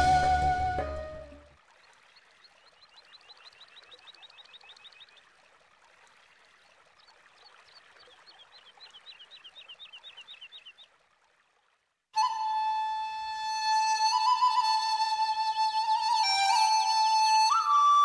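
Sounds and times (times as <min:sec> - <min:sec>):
bird calling high notes: 0:00.0 - 0:01.4, 0:12.2 - 0:18.0.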